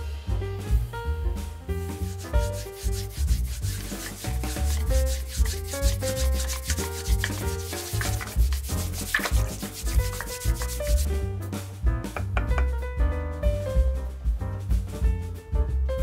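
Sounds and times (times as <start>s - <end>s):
background music: 0.0s - 16.0s
wooden stirrer scraping glass: 2.1s - 11.1s.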